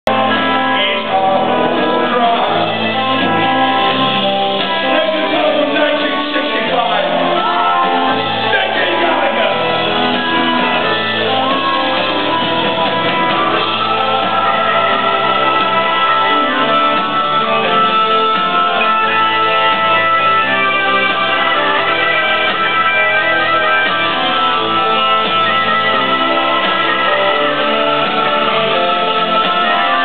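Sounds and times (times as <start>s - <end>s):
person singing: 0.1s - 11.7s
electric guitar: 0.1s - 30.0s
live rock band: 0.1s - 30.0s.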